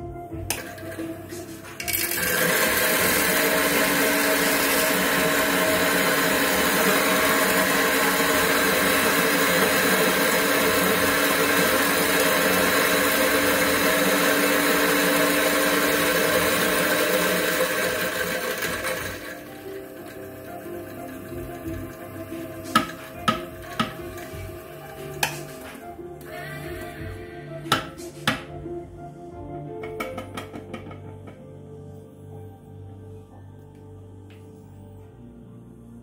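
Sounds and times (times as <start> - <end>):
electric coffee grinder running: 0.5 - 27.9.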